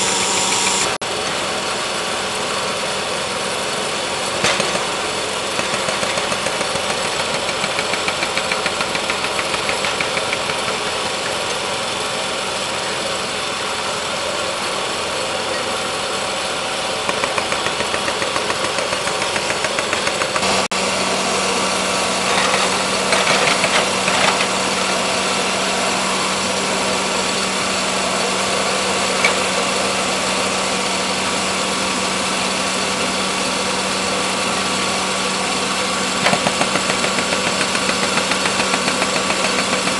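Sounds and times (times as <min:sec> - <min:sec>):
small petrol engines running: 0:00.0 - 0:39.9.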